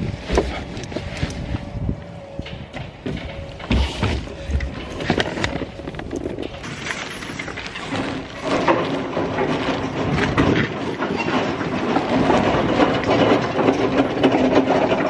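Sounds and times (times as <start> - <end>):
shopping trolley rattling on asphalt: 0.0 - 15.0.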